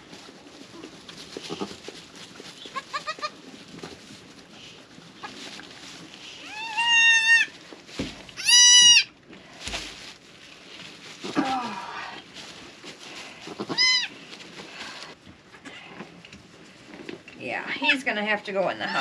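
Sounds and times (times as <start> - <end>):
goat kids bleating: 1.4 - 1.8, 2.7 - 3.4, 6.4 - 7.5, 8.4 - 9.1, 13.5 - 14.1.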